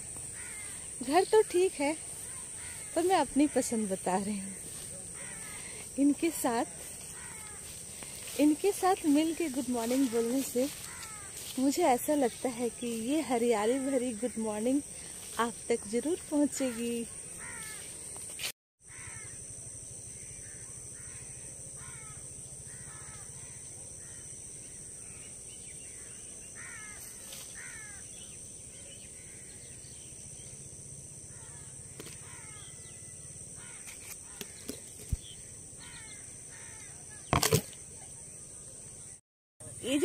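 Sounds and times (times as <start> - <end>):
birds calling: 0.0 - 15.3, 31.3 - 37.7.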